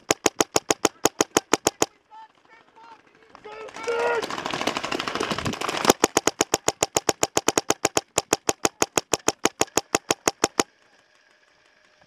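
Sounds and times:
paintball marker rapid firing: 0.0 - 2.0, 3.8 - 10.8.

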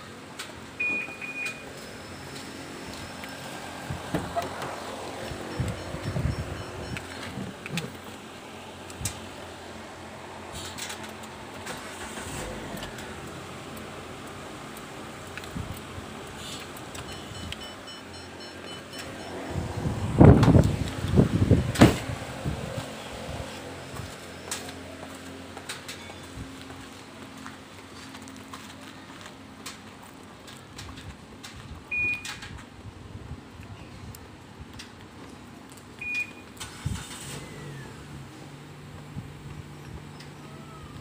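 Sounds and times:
car engine cranking and idling: 0.1 - 33.0, 34.2 - 41.0
car alarm chirp: 0.8 - 2.3, 5.4 - 7.2, 17.1 - 19.4, 31.9 - 32.3, 36.0 - 36.5
bumps and rustling: 3.8 - 8.4
short high beeps: 5.5 - 7.3, 17.1 - 19.4.

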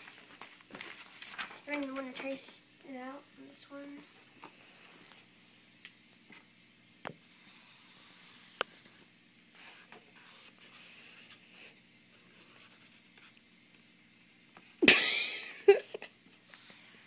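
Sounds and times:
pen scratching on paper: 7.2 - 9.0, 9.6 - 11.4.

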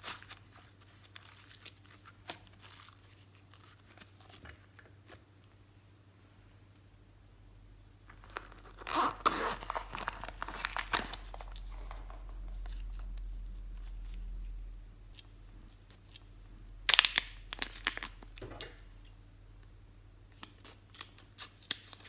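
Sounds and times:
plastic bag crinkling: 8.1 - 14.6, 15.2 - 18.6
bag seal pulled open: 8.2 - 12.0.

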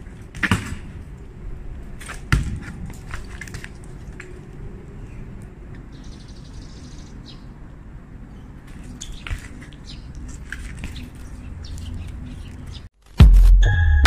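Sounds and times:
bike tyres rolling on concrete: 0.0 - 7.2, 8.4 - 12.9
bike landing knock: 0.3 - 0.9
bird chirps: 5.9 - 7.5, 10.9 - 12.9.

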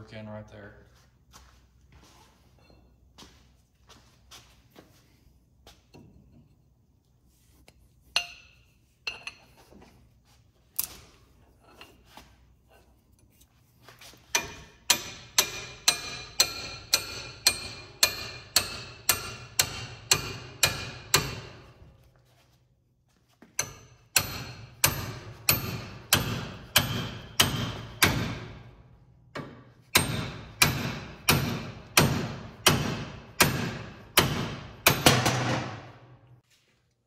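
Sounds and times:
hammer striking metal: 8.2 - 9.4, 14.3 - 21.7, 23.6 - 28.7, 29.4 - 36.0.

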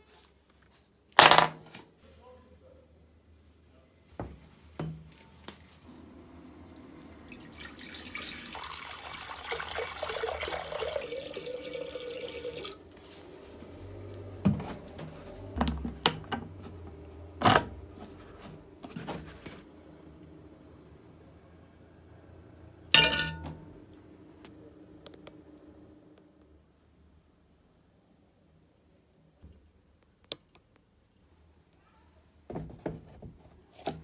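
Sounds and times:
liquid pouring and splashing: 6.7 - 13.0.

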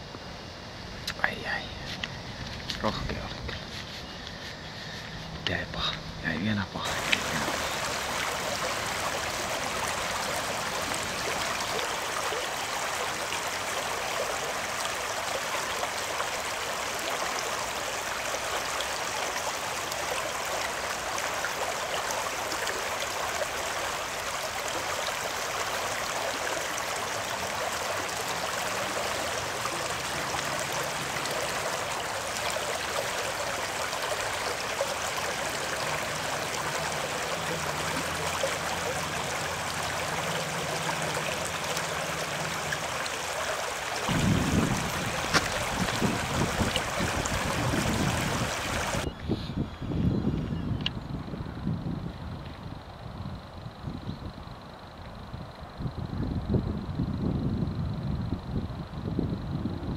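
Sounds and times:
stream flowing over stones: 6.8 - 49.1.

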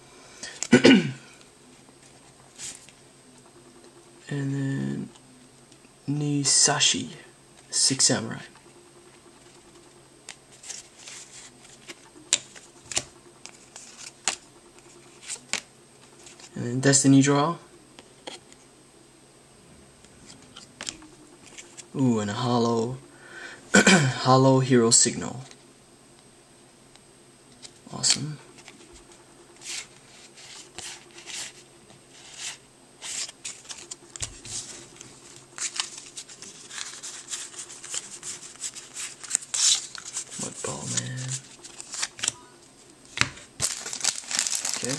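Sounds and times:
trading cards sliding and snapping: 9.4 - 16.5, 27.6 - 42.4.

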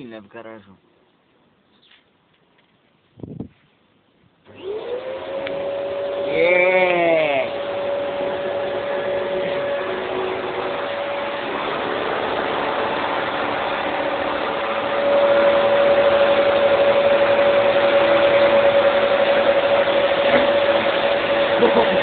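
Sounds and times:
vacuum cleaner running: 4.5 - 22.0.

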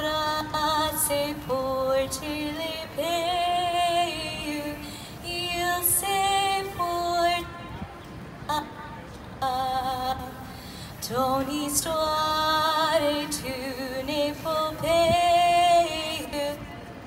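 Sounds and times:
woman singing unaccompanied: 0.0 - 16.8.

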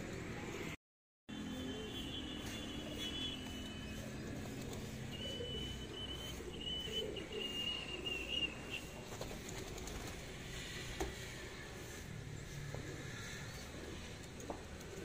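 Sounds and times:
pigeons cooing: 4.2 - 11.2, 12.7 - 15.0.

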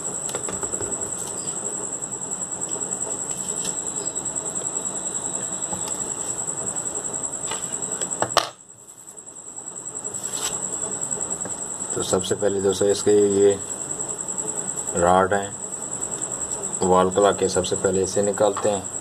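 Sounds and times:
thin high pulsing tone: 0.0 - 8.2.

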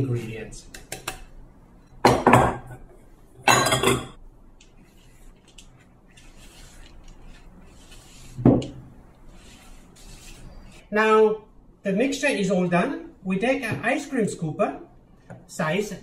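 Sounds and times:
glass bowl clinking: 3.4 - 4.2
spatula scraping batter: 4.6 - 10.8.

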